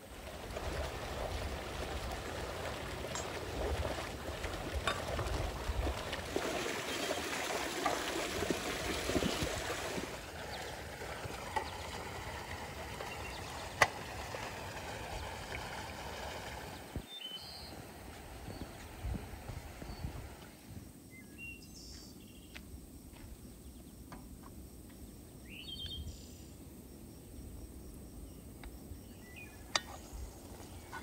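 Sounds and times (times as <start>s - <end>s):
water splashing from fountain: 0.0s - 17.2s.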